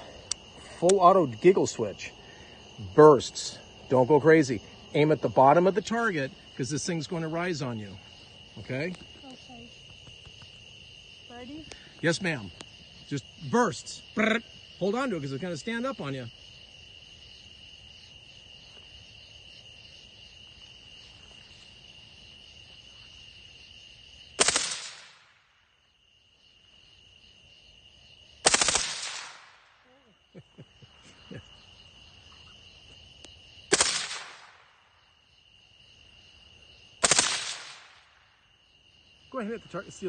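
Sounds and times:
suppressed rifle bursts: 37.0s - 37.8s.

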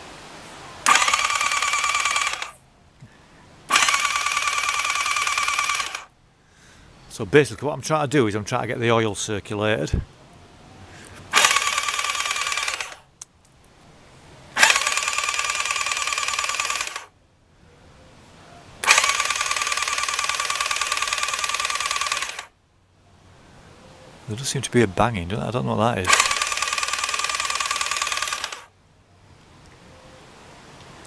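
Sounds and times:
engine cranking on electric starter: 0.8s - 2.6s, 3.7s - 6.1s, 11.3s - 13.1s, 14.6s - 17.1s, 18.8s - 22.5s, 26.0s - 28.7s.

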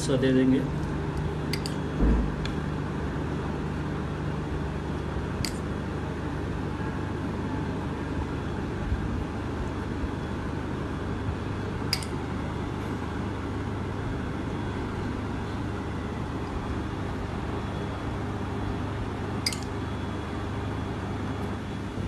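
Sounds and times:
kitchen room hum and hiss: 0.0s - 22.0s
spoon clicks: 11.9s - 12.1s, 19.4s - 19.7s.

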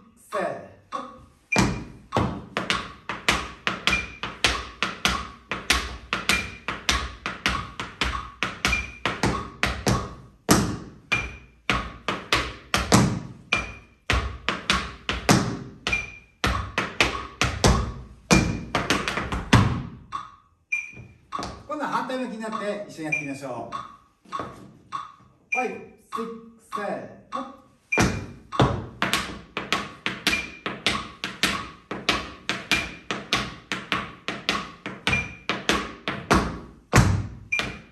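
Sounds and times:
tap shoes on wooden floor: 1.6s - 20.2s, 20.9s - 21.7s, 23.8s - 25.0s, 28.0s - 37.9s
metronome beep: 3.9s - 4.4s, 8.0s - 9.6s, 13.5s - 14.0s, 15.9s - 17.8s, 20.0s - 29.0s, 30.3s - 30.6s, 35.1s - 35.5s, 37.5s - 37.9s.

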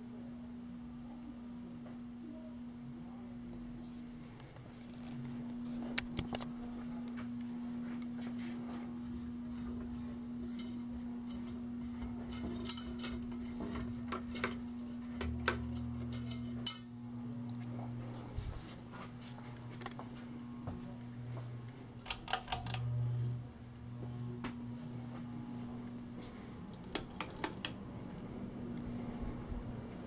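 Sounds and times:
ceiling fan motors humming: 0.0s - 30.0s
deeper hum: 14.7s - 30.0s
sharp clicks and clinks: 22.0s - 22.9s, 26.7s - 27.8s.

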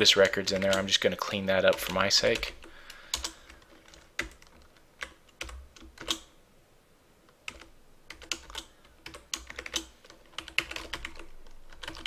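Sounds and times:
computer keyboard typing: 0.0s - 6.3s, 7.4s - 12.0s.

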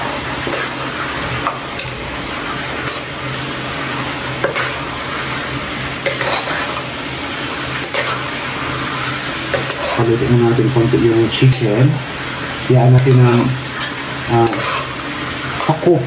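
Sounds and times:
chicken sizzling in pan: 0.0s - 16.0s
utensil scraping and clinking pan: 6.0s - 6.9s, 7.8s - 8.3s, 9.5s - 10.1s, 12.9s - 14.9s.

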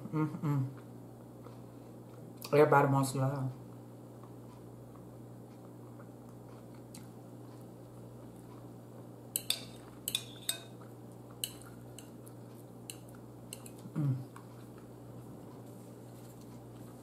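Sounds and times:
faint steady hum: 0.0s - 17.0s
cutlery clinking against a bowl: 9.3s - 13.8s.

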